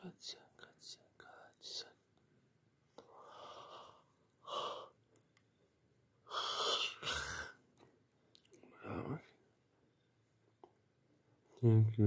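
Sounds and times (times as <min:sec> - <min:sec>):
breathy hisses: 0:06.3 - 0:07.6.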